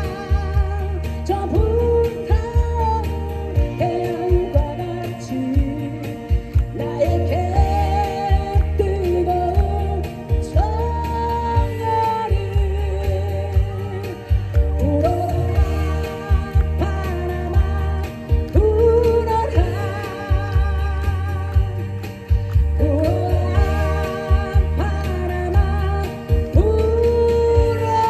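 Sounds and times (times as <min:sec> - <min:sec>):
acoustic guitar: 0:00.0 - 0:28.0
low drum and bass beat: 0:00.0 - 0:28.0
woman singing into microphone: 0:00.0 - 0:28.0.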